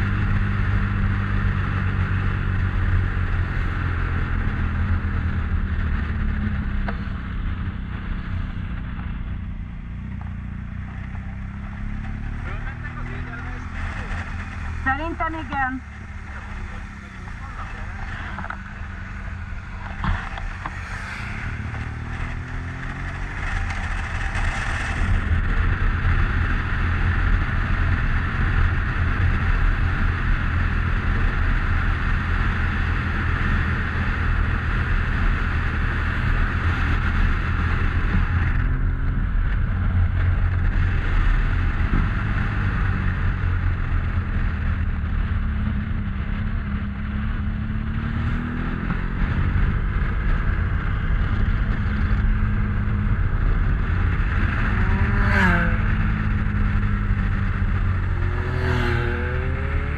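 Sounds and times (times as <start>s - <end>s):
motorcycle engine running: 0.0s - 59.9s
wind noise on microphone: 18.2s - 59.9s.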